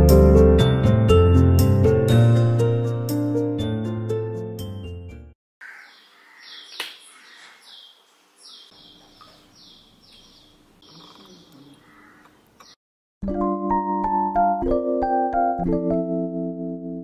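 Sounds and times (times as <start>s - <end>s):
songbird chirping: 5.6s - 12.8s.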